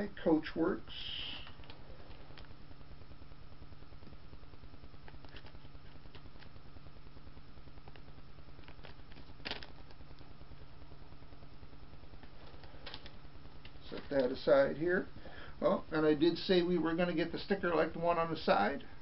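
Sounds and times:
low room hum: 0.0 - 19.0
plastic packaging crinkling: 1.4 - 2.6, 5.0 - 6.6, 7.8 - 10.2, 12.2 - 14.4.

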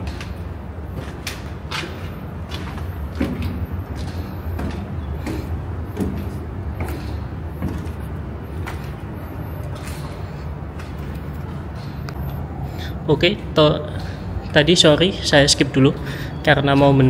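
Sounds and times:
footsteps on hard floor: 0.0 - 12.2.

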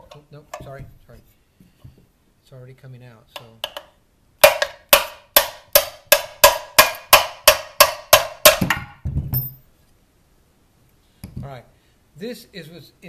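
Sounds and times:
hammer striking metal screw: 3.4 - 9.6
low thump: 9.0 - 9.5.

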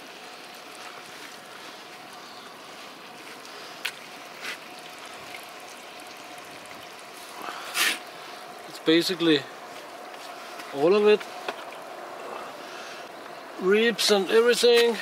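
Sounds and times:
fire hissing and crackling: 7.0 - 13.8.

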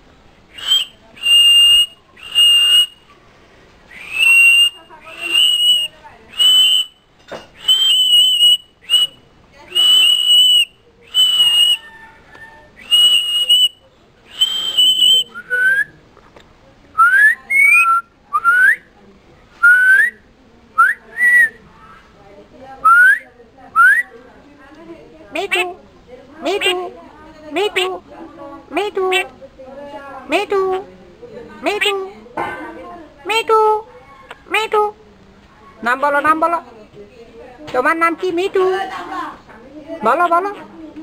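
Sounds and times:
high breathy whistles: 14.3 - 15.9.

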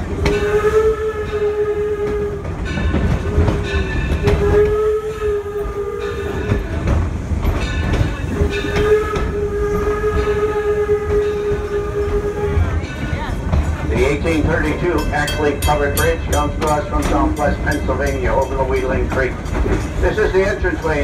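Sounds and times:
low rumble of moving train: 0.0 - 21.0
steam locomotive whistle: 0.1 - 6.8, 8.3 - 13.0.

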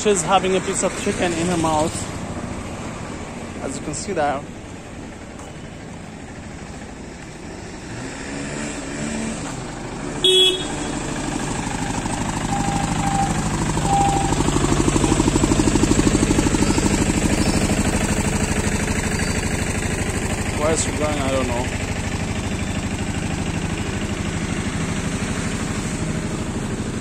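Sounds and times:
vehicle engine running: 0.0 - 27.0
vehicle horn toot: 10.2 - 11.2.

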